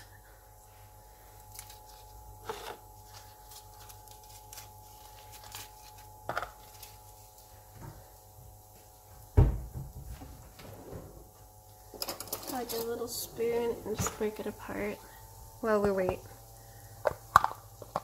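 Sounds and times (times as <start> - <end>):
faint steady hum: 0.0 - 18.0
heavy thump: 9.4 - 10.3.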